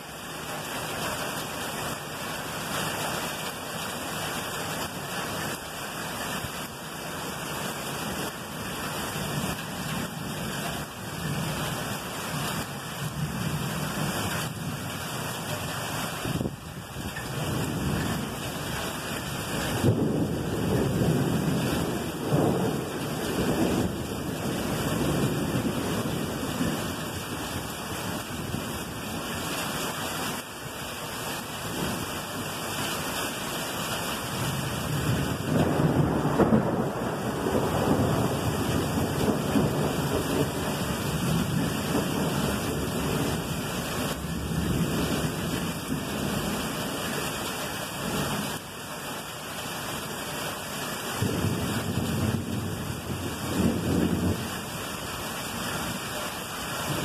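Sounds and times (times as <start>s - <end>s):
steady rain: 0.0s - 57.0s
thunder rumbling: 19.3s - 27.8s, 34.4s - 46.5s, 51.2s - 54.6s.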